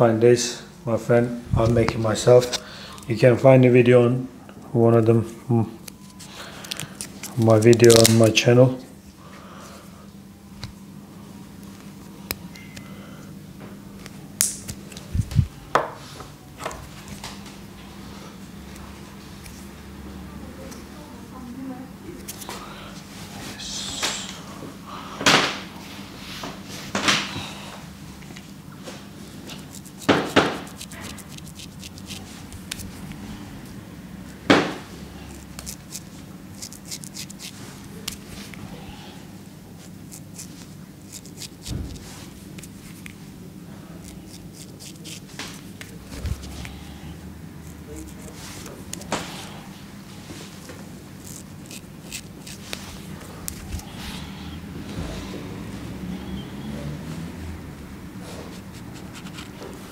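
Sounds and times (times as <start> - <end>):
steady low hum: 0.0 - 59.9
razor blade scrape: 29.5 - 33.2, 35.3 - 38.2, 40.1 - 41.7, 44.0 - 45.4, 51.2 - 54.3, 58.5 - 59.6.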